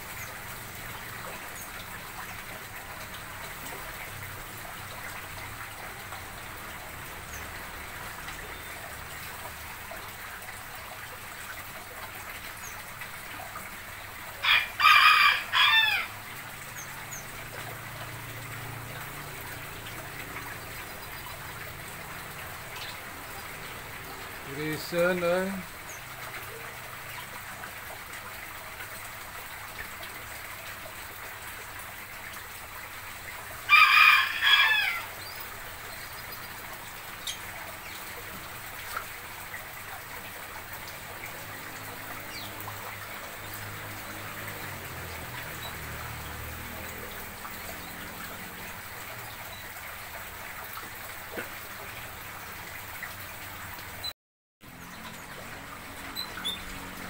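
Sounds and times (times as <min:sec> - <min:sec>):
rooster crowing: 0:14.4 - 0:16.1, 0:33.7 - 0:35.2.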